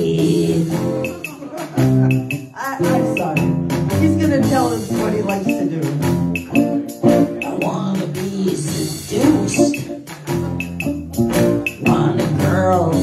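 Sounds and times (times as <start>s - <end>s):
acoustic guitar playing: 0.0s - 13.0s
backing instruments: 0.0s - 13.0s.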